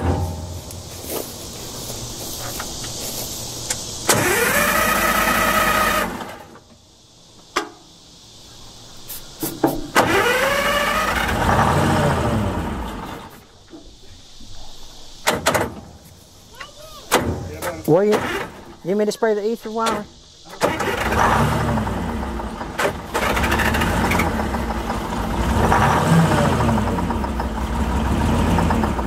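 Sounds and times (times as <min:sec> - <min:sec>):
sharp clunks: 0:00.0 - 0:00.9, 0:15.2 - 0:15.9
starter motor cranking: 0:04.0 - 0:06.5, 0:10.0 - 0:11.8, 0:20.6 - 0:25.6.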